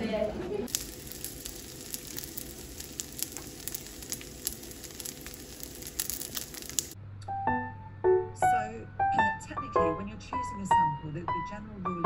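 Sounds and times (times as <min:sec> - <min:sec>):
dumplings sizzling in a pan: 0:00.7 - 0:07.0.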